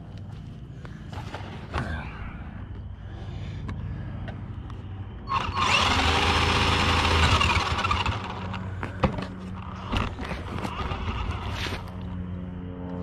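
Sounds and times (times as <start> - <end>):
low motor hum with ticks: 0.0 - 13.0
electric motor whine: 5.1 - 13.0.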